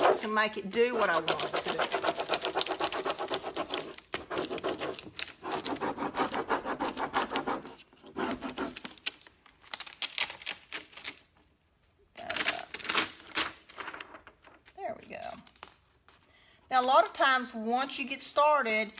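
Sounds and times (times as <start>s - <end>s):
scratchy rubbing on transfer sheet: 0.0s - 8.8s.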